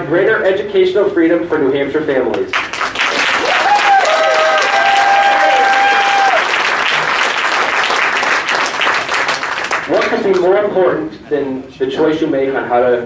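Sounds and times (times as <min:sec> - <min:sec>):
audience applauding: 0:02.6 - 0:10.5
person cheering: 0:03.4 - 0:06.6.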